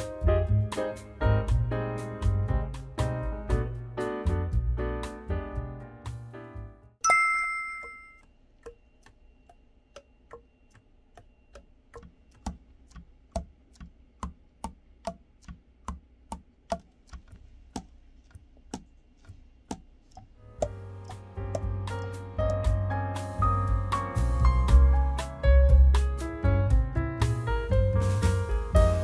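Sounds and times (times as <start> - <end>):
music: 0.0 - 7.0, 20.3 - 29.0
bright chime: 7.0 - 8.2.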